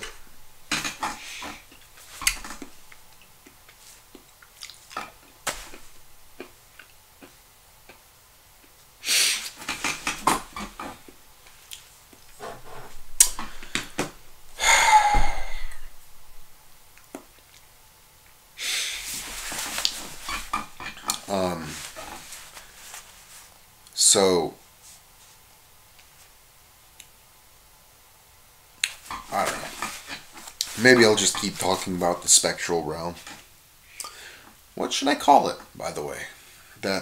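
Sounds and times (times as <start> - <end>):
person breathing: 1.1 - 1.7, 12.4 - 16.0, 18.6 - 19.3, 33.8 - 34.6
mouth clicks and smacks: 1.4 - 5.1, 28.8 - 29.2
breathy sigh: 13.4 - 15.9.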